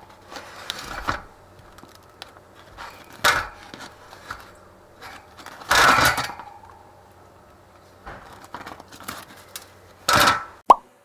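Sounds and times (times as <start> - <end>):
wire rack rattling in metal tray: 2.8 - 6.7.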